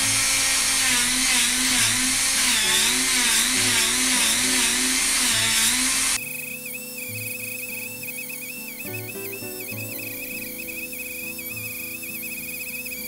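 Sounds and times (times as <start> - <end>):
rotary tool sanding wood: 0.0 - 13.0.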